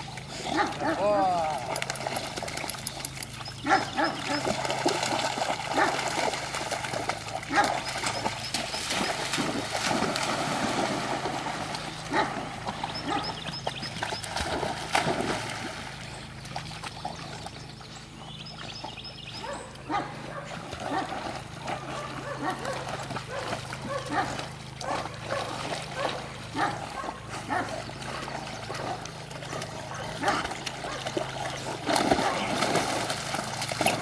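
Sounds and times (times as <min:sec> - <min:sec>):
dogs splashing through water: 0:00.0 - 0:34.0
dog vocal sounds: 0:21.8 - 0:32.8.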